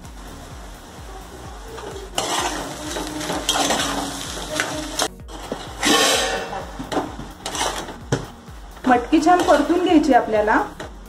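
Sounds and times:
beans rustling in oil: 0:00.0 - 0:06.1, 0:06.8 - 0:08.0
spoon scraping metal pot: 0:02.2 - 0:08.0.

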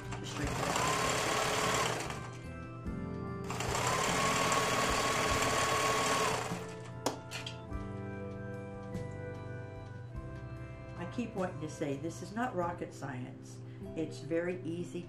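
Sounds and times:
sewing machine stitching: 0:00.0 - 0:02.4, 0:03.5 - 0:06.8
soft background music: 0:00.0 - 0:15.0.

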